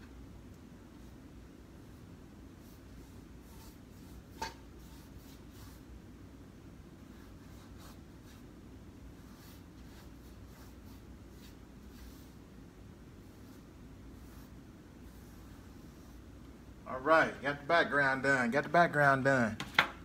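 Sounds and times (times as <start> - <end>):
low room hum: 0.0 - 20.0
paintbrush stroking canvas: 1.0 - 6.0, 7.0 - 16.4.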